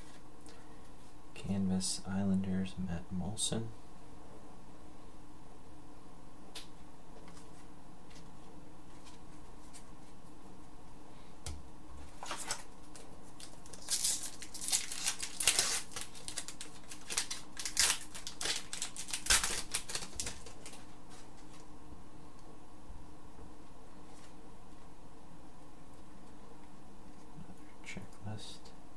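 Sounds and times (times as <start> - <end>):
steady low hum: 0.0 - 28.9
cards rustling and clicking: 12.0 - 21.7.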